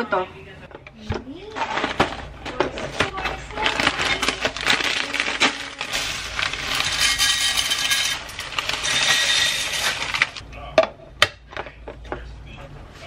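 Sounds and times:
packaging rustling and crinkling: 1.4 - 10.4.

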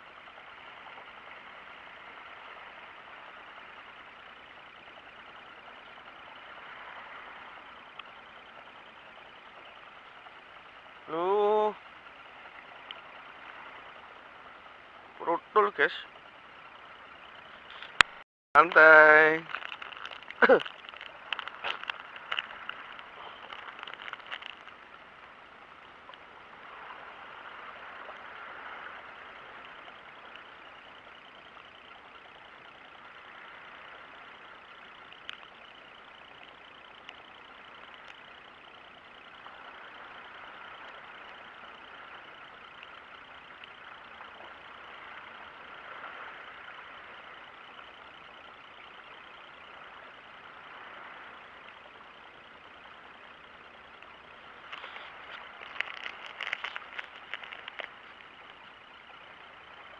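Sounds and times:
sea water washing: 0.0 - 59.9
plastic packet crinkling: 19.4 - 22.5, 54.7 - 58.0.

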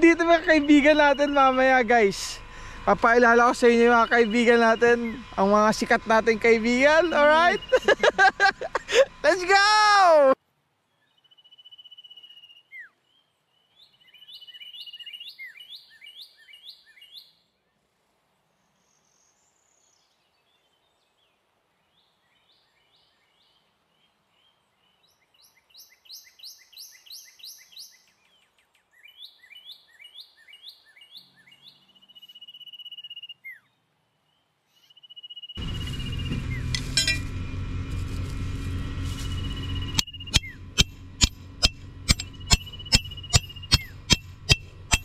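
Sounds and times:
birds chirping: 0.0 - 9.6, 10.9 - 17.5, 21.9 - 45.0
thin high bird trill: 39.0 - 45.0.

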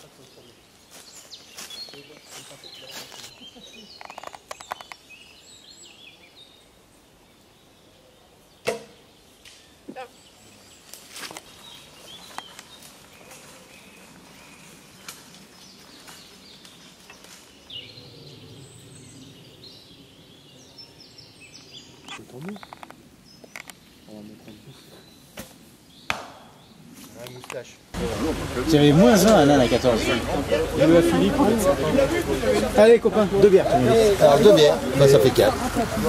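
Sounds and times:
small clicks and rustles: 3.9 - 5.0.

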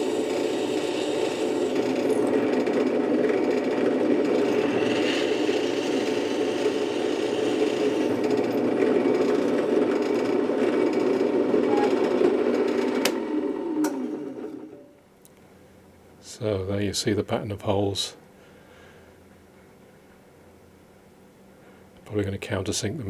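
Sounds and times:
drill press drilling steel: 0.0 - 13.2.

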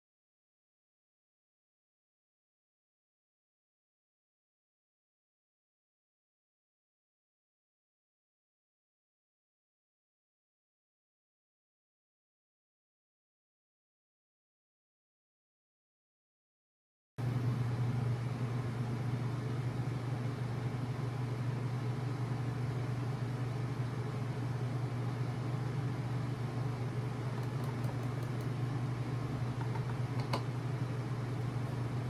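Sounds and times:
evaporative cooler humming: 17.2 - 32.0.

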